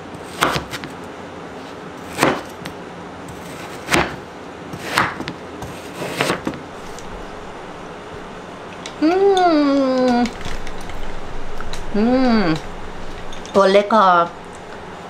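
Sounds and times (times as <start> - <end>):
knife chopping on cutting board: 0.2 - 0.9, 2.1 - 2.6, 3.3 - 4.2, 4.8 - 6.6.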